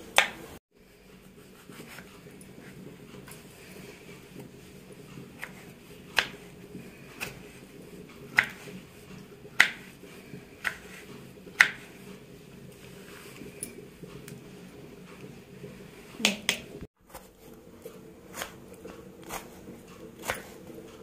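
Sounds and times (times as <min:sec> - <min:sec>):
knife slicing tomato on wooden board: 0:01.2 - 0:12.2, 0:17.1 - 0:21.0.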